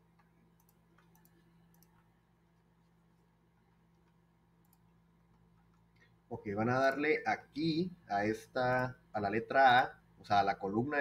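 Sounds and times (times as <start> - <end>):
computer mouse clicks: 0.2 - 2.1, 3.9 - 6.1.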